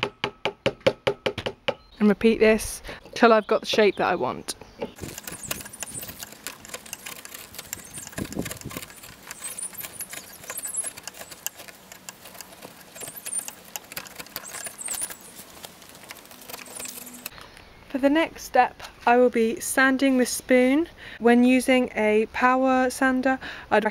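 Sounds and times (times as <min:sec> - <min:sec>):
gouge scraping wood: 0:04.9 - 0:17.3.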